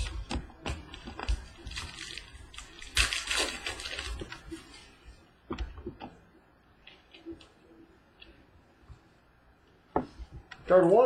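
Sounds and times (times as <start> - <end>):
wrapper crinkling and rustling: 0.0 - 5.0.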